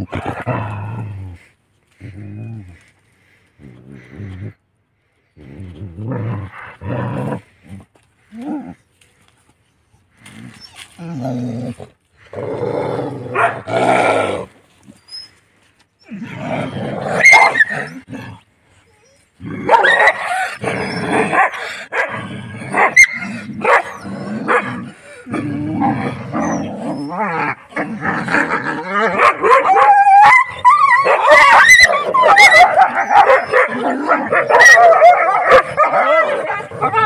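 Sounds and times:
dogs growling and barking: 0.0 - 4.6, 10.2 - 14.6, 16.1 - 18.4, 19.1 - 37.0
dogs whining and yelping: 17.2 - 18.1, 18.8 - 21.5, 26.2 - 27.6, 29.0 - 37.0.

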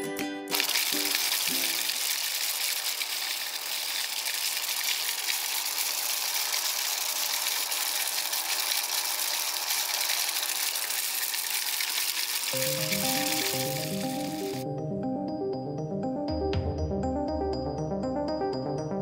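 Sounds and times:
rice huller hissing: 0.5 - 14.6.

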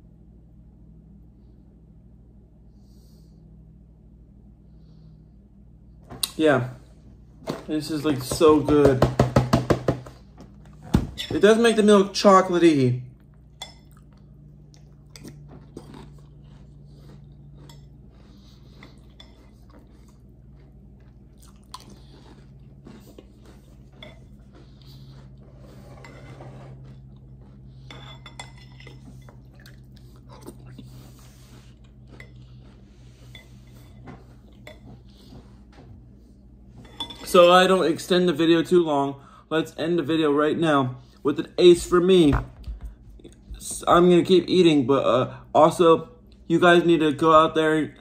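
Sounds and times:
person chewing cereal: 13.1 - 35.7.

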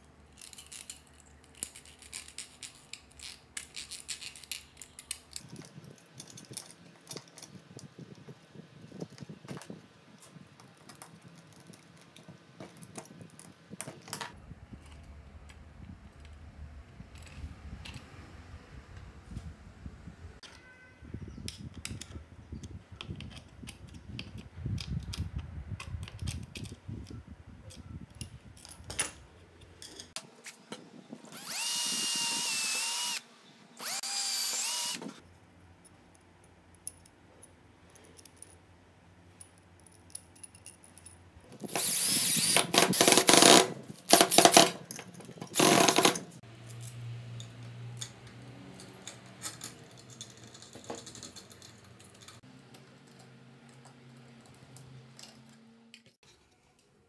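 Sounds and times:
metal parts and screws clicking: 0.3 - 15.1, 21.4 - 30.2, 31.3 - 33.2, 33.8 - 35.2, 39.3 - 56.2
cordless drill whining: 31.3 - 33.2, 33.8 - 35.2, 41.7 - 44.6.

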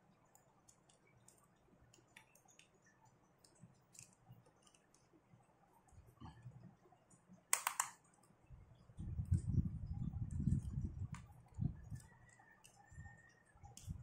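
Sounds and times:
screwdriver and metal clicks: 7.5 - 8.0.

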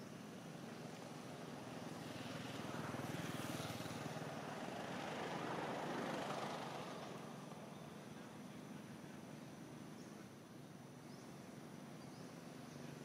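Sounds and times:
vehicle engine passing by: 0.8 - 8.7.

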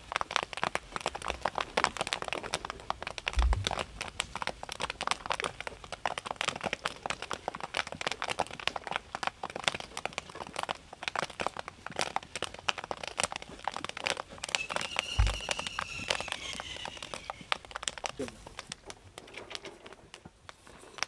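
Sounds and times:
popcorn popping in hot oil: 0.0 - 21.0
low thump: 3.3 - 4.2, 15.2 - 15.8
faint high whistle-like tone: 14.5 - 17.5.

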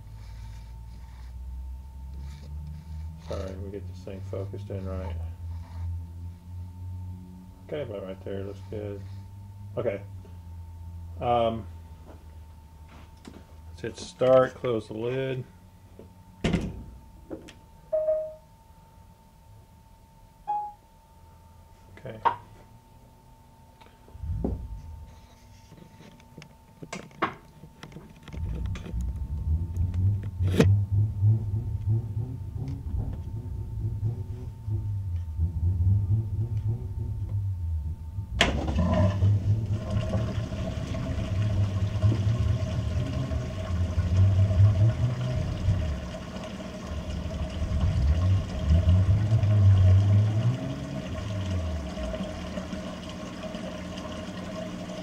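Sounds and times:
washer motor rumbling: 24.1 - 25.2, 27.2 - 55.0
water rushing: 38.5 - 55.0.

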